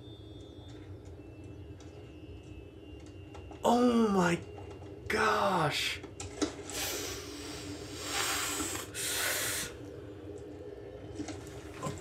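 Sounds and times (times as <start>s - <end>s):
faint low hum: 0.0s - 12.0s
long hissing: 6.7s - 10.0s.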